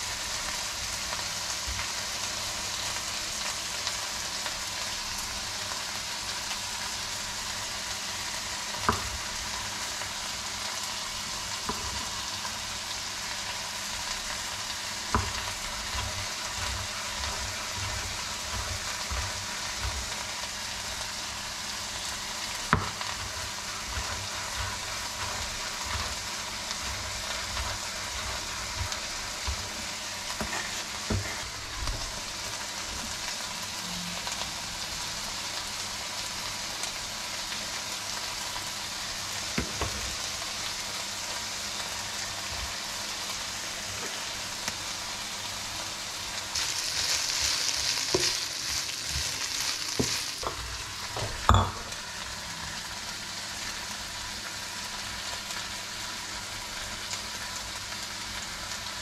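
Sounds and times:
knife chopping on wooden board: 0:22.7 - 0:23.3
steady hiss: 0:38.6 - 0:51.2.

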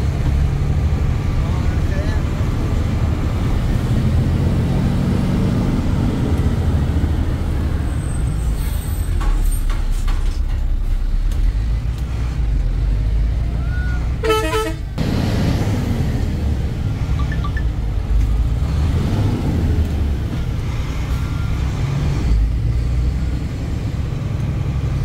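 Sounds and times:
vehicle horn blast: 0:14.2 - 0:14.9.

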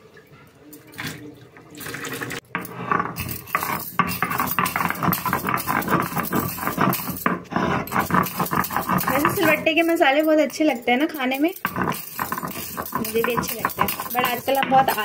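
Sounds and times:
stone roller scraping grinding stone: 0:02.4 - 0:15.0.

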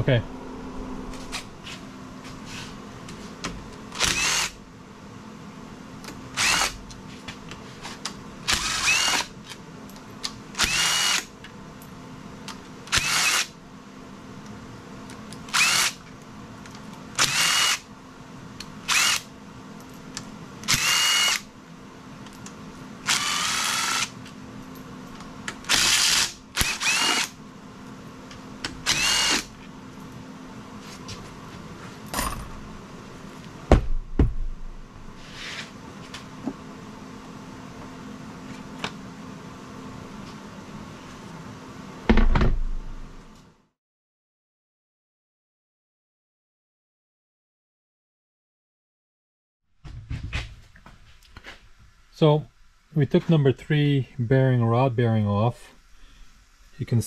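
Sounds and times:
cordless power tool bursts: 0:04.0 - 0:04.6, 0:06.4 - 0:06.8, 0:08.5 - 0:09.3, 0:10.6 - 0:11.3, 0:12.9 - 0:13.5, 0:15.5 - 0:16.0, 0:17.2 - 0:17.8, 0:18.9 - 0:19.3, 0:20.7 - 0:21.5, 0:23.0 - 0:24.1, 0:25.7 - 0:27.4, 0:28.8 - 0:29.5.

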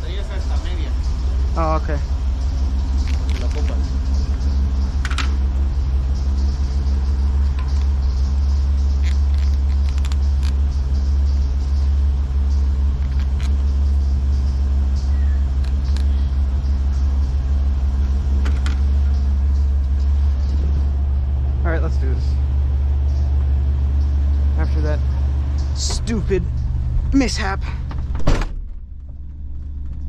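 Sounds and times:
truck engine idling: 0:00.0 - 0:30.0.

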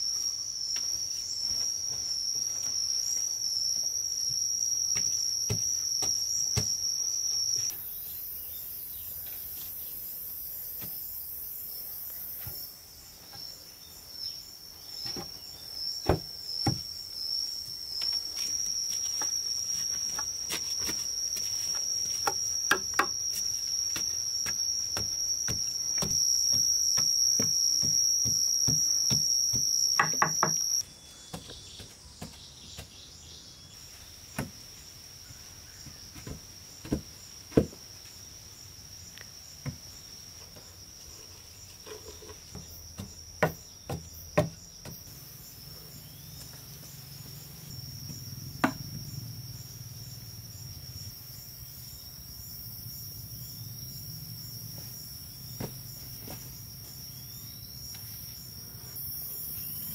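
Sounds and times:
high-pitched insect drone: 0:15.5 - 0:30.8.

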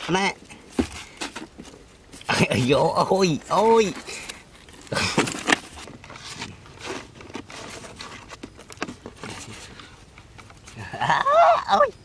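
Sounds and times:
rustling against cardboard: 0:00.0 - 0:10.9
scratches and clicks: 0:03.6 - 0:10.8.

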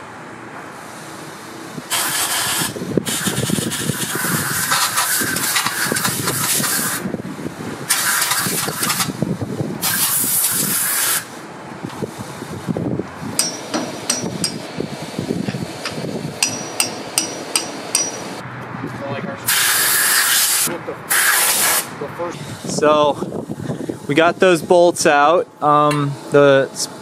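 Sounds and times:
compressed air blasting from hose: 0:00.7 - 0:18.4, 0:19.5 - 0:22.7
sharp metallic clicks: 0:15.8 - 0:18.2.

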